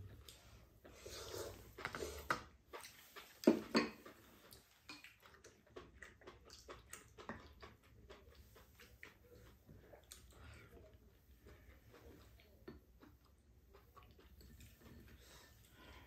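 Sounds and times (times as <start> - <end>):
people slurping and chewing: 0.0 - 16.0.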